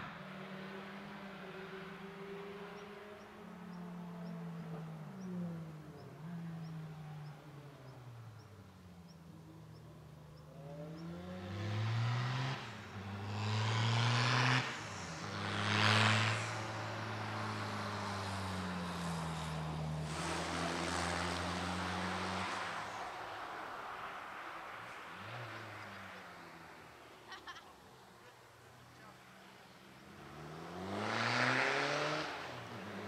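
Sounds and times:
car engine accelerating hard: 0:10.4 - 0:27.1, 0:29.9 - 0:33.0.

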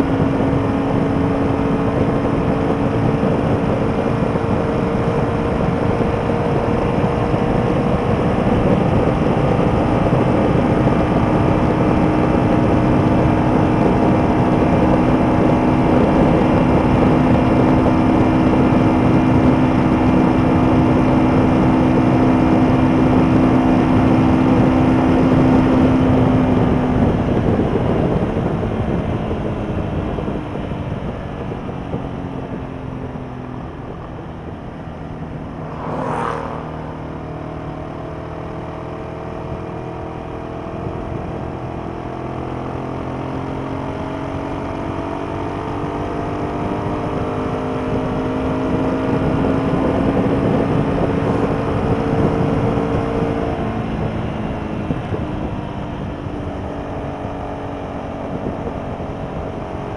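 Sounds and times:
motorcycle engine at speed: 0:00.0 - 0:59.9
brief whoosh: 0:35.0 - 0:38.6.

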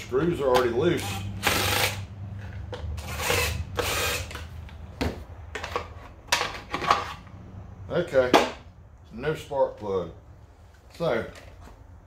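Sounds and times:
impact driver spinning screws: 0:01.0 - 0:04.5.

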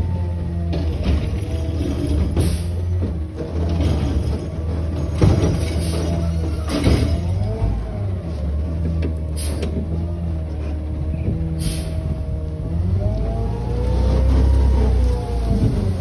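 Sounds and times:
garbage truck engine running: 0:00.0 - 0:16.0
metal clanks: 0:00.7 - 0:07.7.

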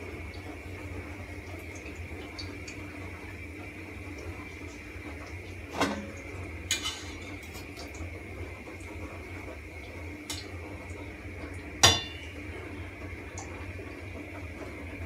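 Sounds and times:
steady background hum: 0:00.0 - 0:15.0
metal utensil clinking on pan: 0:06.7 - 0:07.3, 0:11.8 - 0:12.2.

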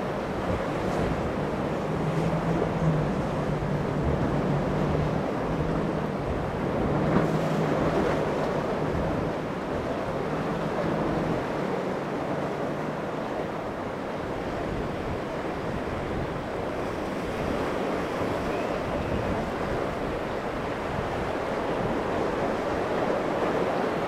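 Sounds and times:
outboard engines droning: 0:00.0 - 0:24.0
waves breaking and churning: 0:00.0 - 0:24.0
wind buffeting microphone: 0:13.2 - 0:24.0.

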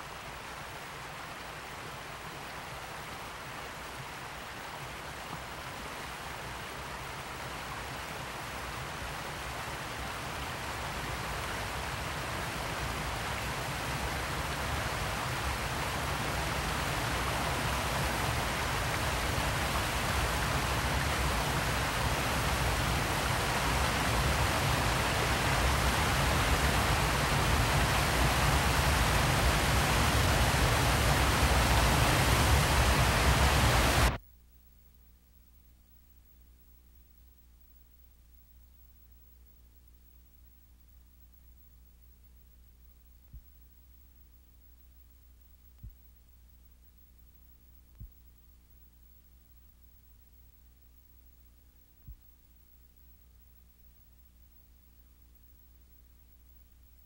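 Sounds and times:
steady rushing noise: 0:08.3 - 0:34.2.

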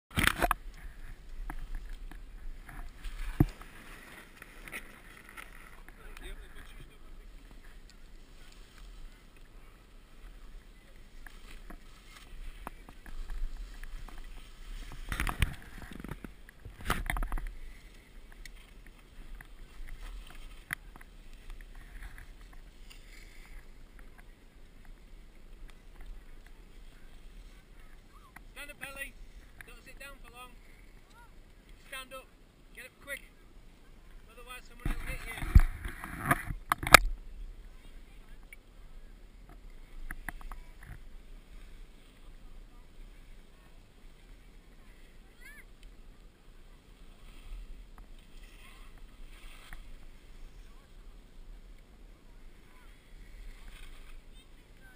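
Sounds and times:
skis scraping over packed snow: 0:00.1 - 0:32.3, 0:32.9 - 0:54.9.

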